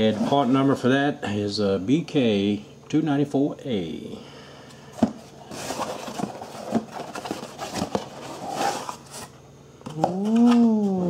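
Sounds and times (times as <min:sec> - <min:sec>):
packaging rustling and crinkling: 0:05.2 - 0:09.3
man saying ooh: 0:09.9 - 0:11.0.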